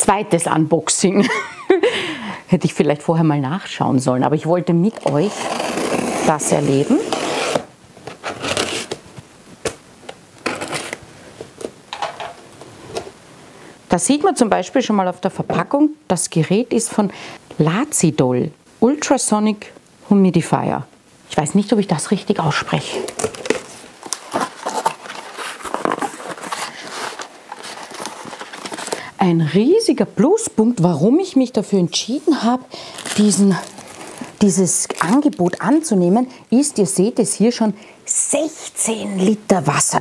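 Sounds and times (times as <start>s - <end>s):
packing tape being slit: 4.9s - 9.0s, 10.4s - 11.0s, 23.1s - 29.0s, 32.9s - 35.4s
cardboard flaps scraping and rustling: 5.0s - 9.8s, 10.4s - 11.7s, 23.1s - 29.0s.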